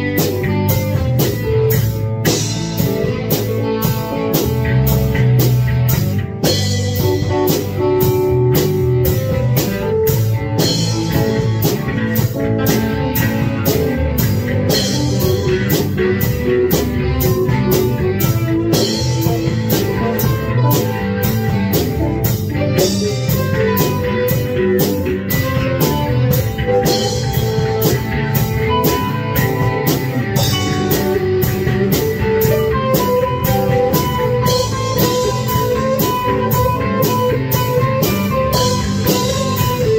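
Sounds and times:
drums beating: 0.0 - 39.9
electric guitar rock riff: 0.0 - 39.9.

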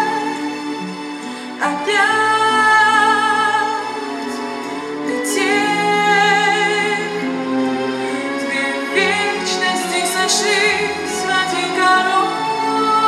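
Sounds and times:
woman singing pop ballad: 0.0 - 0.6, 1.4 - 13.0
backing music: 0.0 - 13.0.

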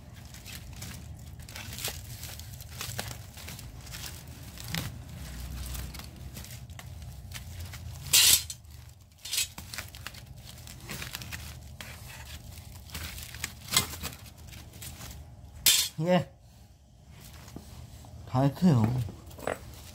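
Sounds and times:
metal fins crinkling and tearing: 0.0 - 16.0
sharp metal scrape: 8.0 - 8.6, 9.2 - 9.6, 15.6 - 16.0.

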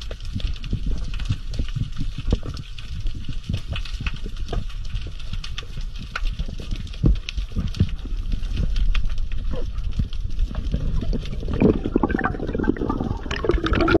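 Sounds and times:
low underwater rumble: 0.0 - 14.0
underwater clicks: 0.0 - 14.0
water bubbling: 5.8 - 14.0.

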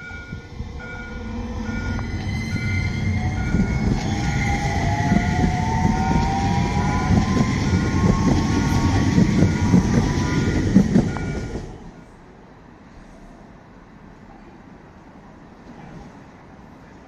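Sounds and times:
tram rumbling on rails: 0.0 - 17.0.

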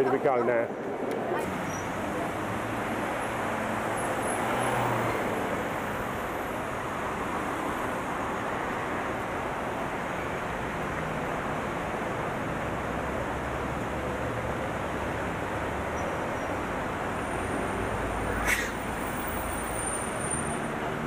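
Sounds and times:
road and traffic noise inside vehicle: 0.0 - 21.0.

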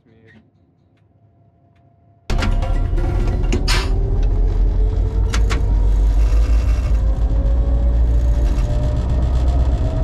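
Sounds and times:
diesel locomotive engine rumble: 2.3 - 10.0
rising whine: 2.3 - 10.0.

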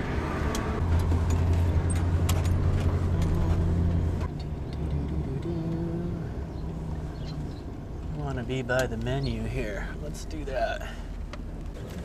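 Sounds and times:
engine and road drone: 0.0 - 12.0.

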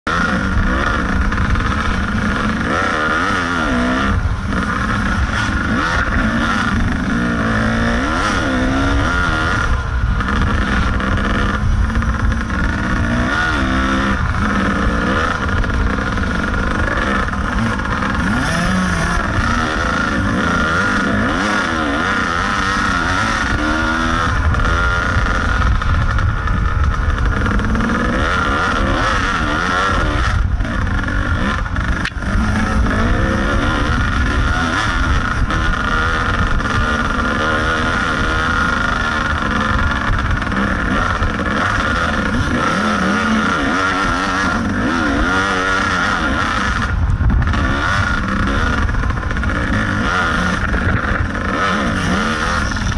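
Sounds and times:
dirt bike engine revving: 0.0 - 52.9.

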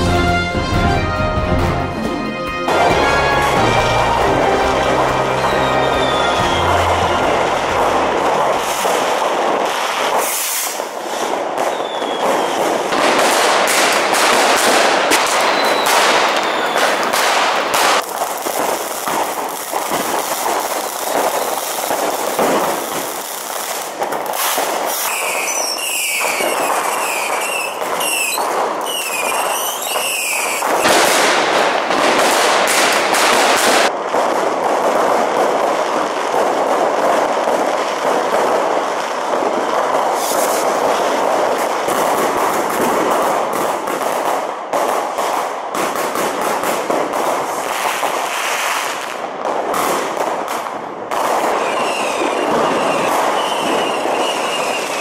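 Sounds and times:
firecrackers crackling: 0.0 - 55.0
fireworks bangs: 0.0 - 55.0
short firework whistles: 5.1 - 9.2, 9.8 - 12.9, 13.7 - 17.3, 23.7 - 31.2, 40.1 - 41.0, 51.4 - 55.0.

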